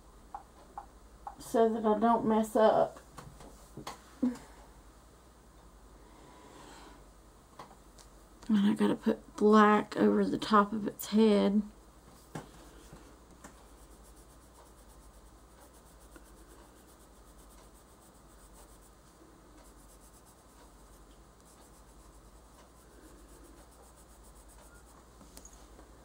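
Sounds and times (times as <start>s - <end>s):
colored pencil scratching on paper: 13.5s - 25.5s.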